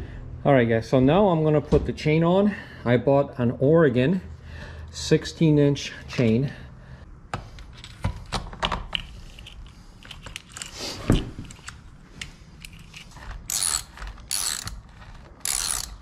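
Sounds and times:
tool ratcheting: 12.6s - 16.0s.

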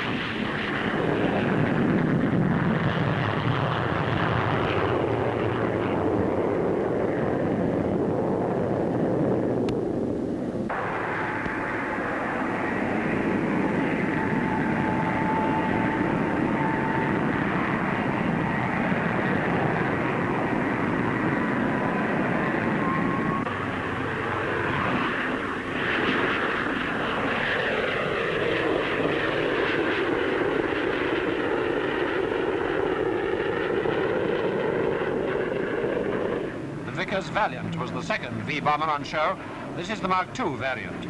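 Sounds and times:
jet aircraft roar: 0.0s - 41.0s
faint high whine: 36.3s - 41.0s.

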